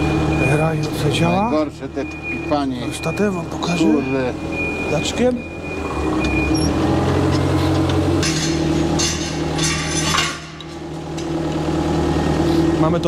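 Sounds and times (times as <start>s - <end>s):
forklift engine running: 0.0s - 13.0s
metal rattling and clinking: 8.2s - 11.4s.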